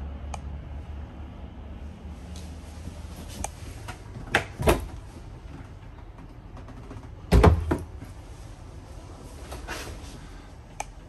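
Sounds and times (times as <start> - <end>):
door thud with rattle: 7.3 - 7.9.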